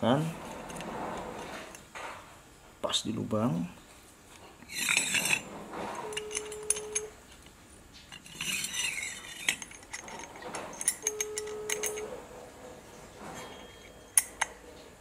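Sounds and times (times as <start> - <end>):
metallic clicks of pulley parts: 8.1 - 12.1.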